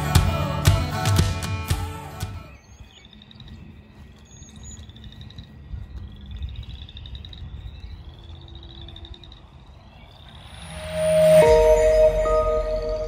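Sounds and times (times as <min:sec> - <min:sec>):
low rumble: 0:06.0 - 0:13.0.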